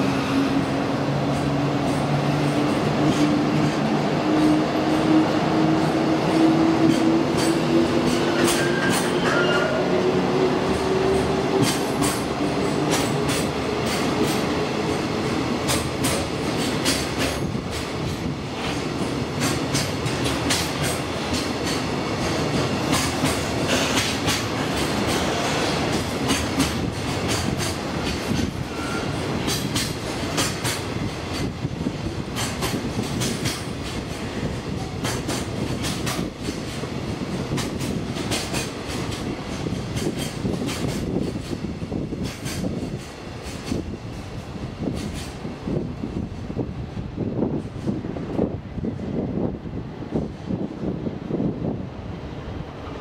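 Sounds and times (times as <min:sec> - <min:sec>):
train rumble: 0:00.0 - 0:53.0
wheels clacking over rail joints: 0:10.7 - 0:45.4.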